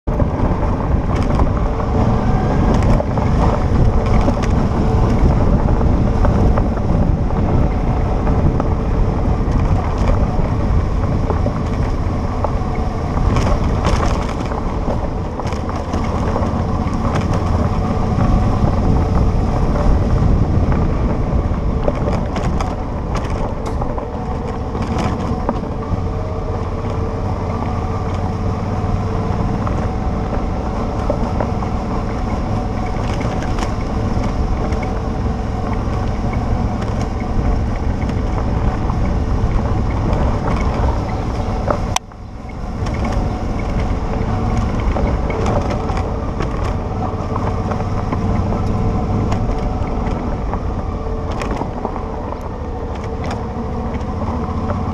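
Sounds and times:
motorcycle engine running: 0.0s - 54.9s
wind buffeting microphone: 0.0s - 54.9s
tyres crunching on gravel: 0.1s - 54.9s.

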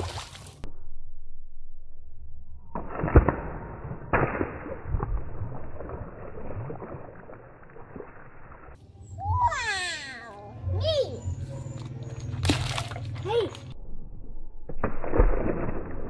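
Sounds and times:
water splashing on tiles: 0.0s - 0.6s, 2.8s - 8.6s, 12.2s - 13.7s, 14.7s - 16.0s
water balloon bursting: 2.8s - 6.0s.

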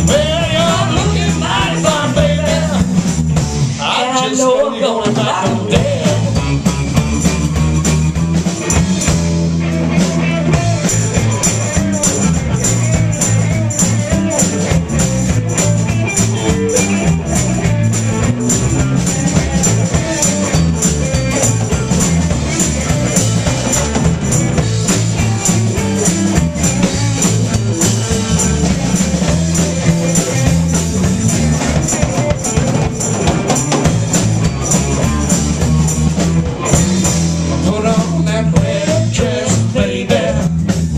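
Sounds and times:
blues band playing: 0.0s - 40.9s
tambourine shaken and struck: 10.5s - 37.6s.

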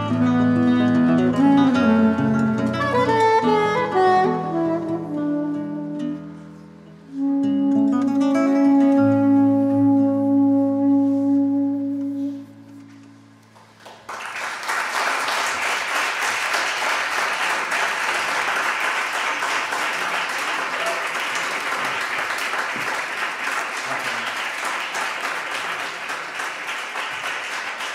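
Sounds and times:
soprano saxophone note: 0.0s - 13.6s
audience applause: 13.6s - 27.9s.

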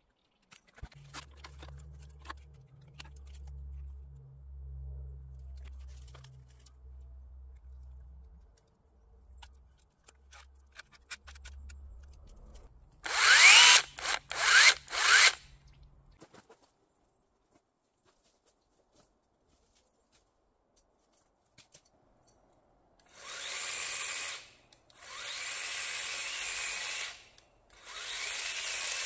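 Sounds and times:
pole saw motor whining: 13.0s - 15.5s, 23.1s - 29.0s.

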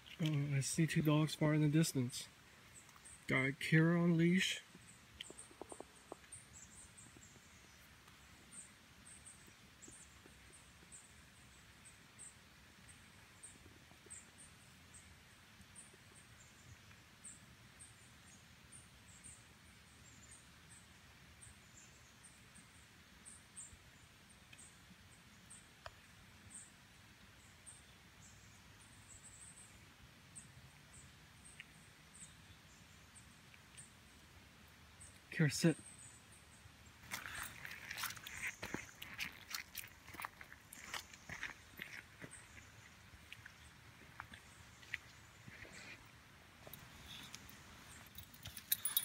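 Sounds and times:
songbirds chirping: 0.0s - 49.0s
small bird chirping: 4.6s - 15.1s, 46.6s - 49.0s.

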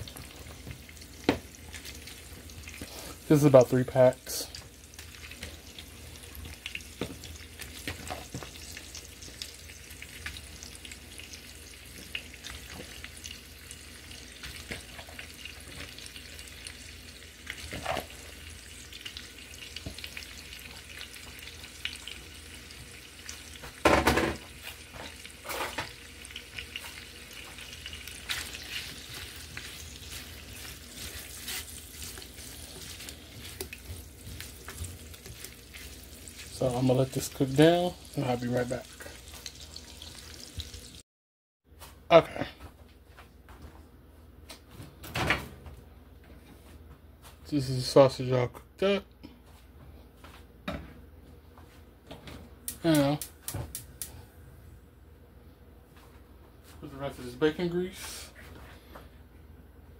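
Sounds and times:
spatula stirring in skillet: 0.0s - 23.7s, 24.5s - 41.0s
sausage sizzling in grease: 0.0s - 41.0s, 52.7s - 54.2s.

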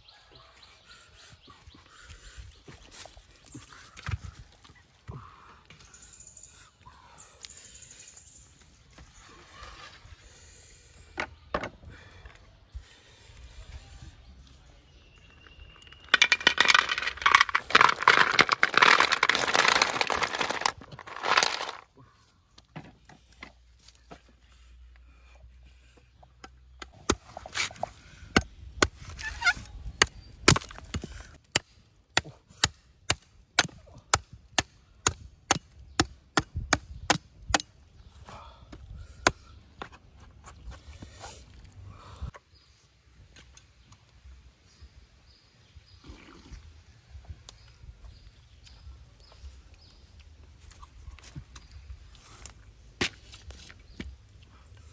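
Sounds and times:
machete chopping coconut: 30.0s - 37.7s.

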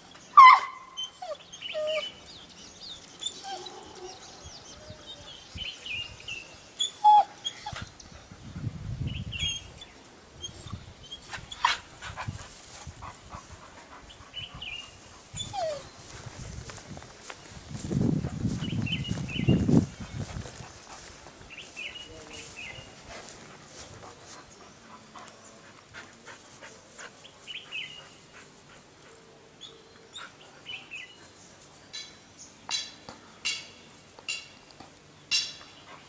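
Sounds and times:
dogs yipping and whining: 0.4s - 2.2s, 3.2s - 3.9s, 6.8s - 7.9s, 15.4s - 15.9s.

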